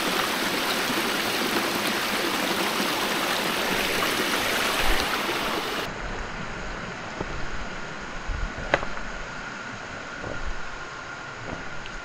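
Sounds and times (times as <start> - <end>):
stream running over rocks: 0.0 - 5.9.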